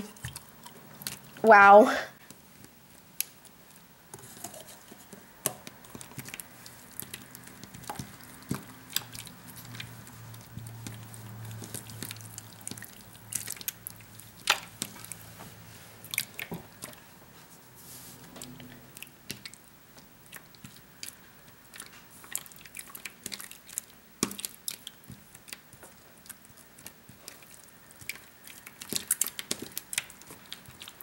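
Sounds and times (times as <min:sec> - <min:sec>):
fingers squishing slime: 0:05.1 - 0:15.4, 0:16.0 - 0:17.0, 0:18.3 - 0:19.6, 0:20.2 - 0:31.0.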